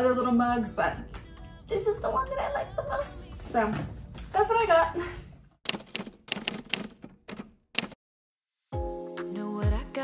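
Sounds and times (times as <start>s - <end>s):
background pop music: 0.0s - 4.2s, 8.7s - 10.0s.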